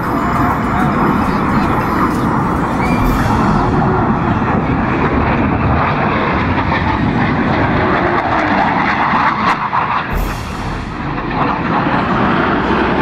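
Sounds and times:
jet aircraft flying over: 0.0 - 13.0.

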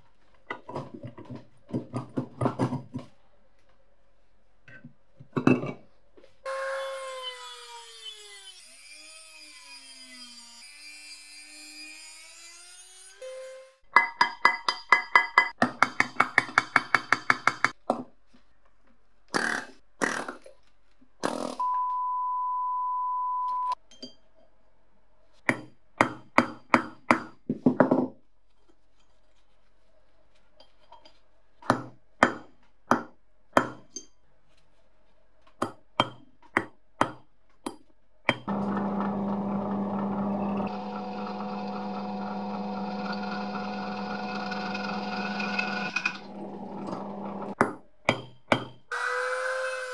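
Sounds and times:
drill press drilling iron: 38.5 - 47.6.

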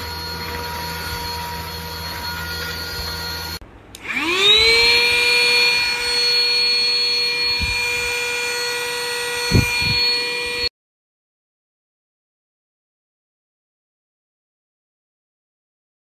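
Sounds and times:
vacuum motor whine: 0.0 - 10.7.

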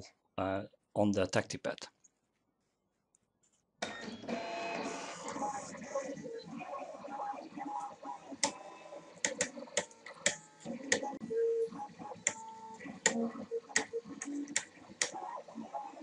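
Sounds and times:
sharp clicks: 9.2 - 11.1.

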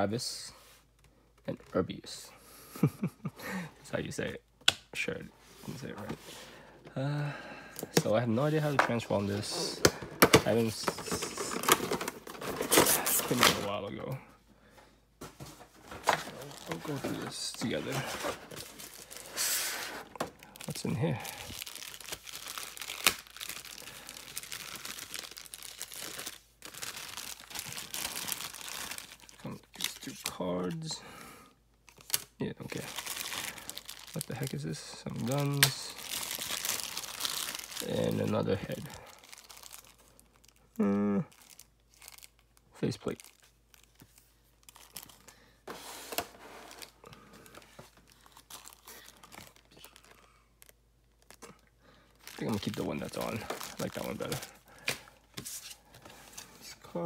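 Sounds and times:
plastic packaging crinkling: 8.1 - 13.8, 15.8 - 30.8, 31.9 - 40.7, 41.3 - 56.5
plastic tray crinkling: 8.6 - 13.7, 52.2 - 55.0.

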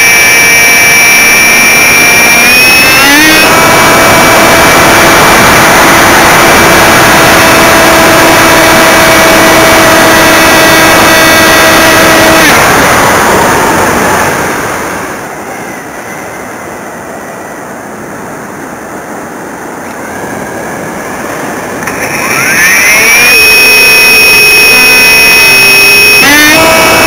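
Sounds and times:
electric motor whine: 0.0 - 16.5, 19.9 - 27.0
air rushing over glider: 3.4 - 23.1.

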